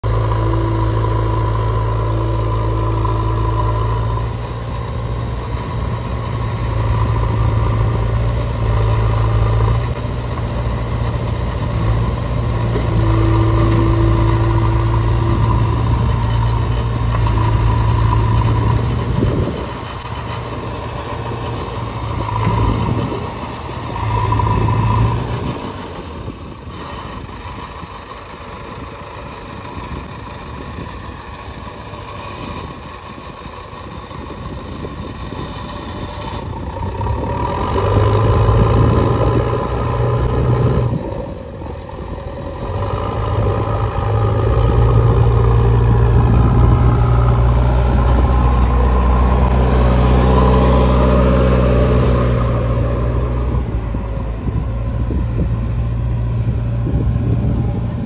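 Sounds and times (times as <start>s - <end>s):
diesel engine running: 0.0s - 58.0s
high whine: 0.0s - 58.0s.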